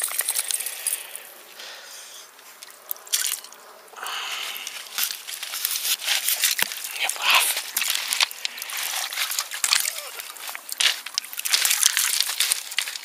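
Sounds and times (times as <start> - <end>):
dog paws splashing in shallow water: 4.6 - 13.0
pebbles clicking: 6.3 - 13.0.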